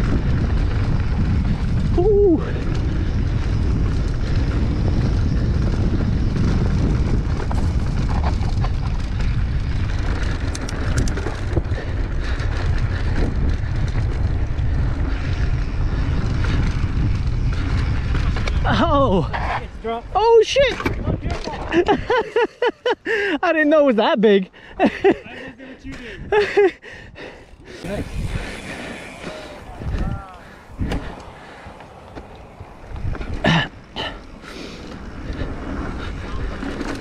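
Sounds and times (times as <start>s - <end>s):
wind buffeting microphone: 0.0s - 22.4s, 24.5s - 37.0s
bike tyres rolling on dirt: 0.0s - 22.5s, 24.8s - 37.0s
sharp clicks: 10.4s - 11.4s.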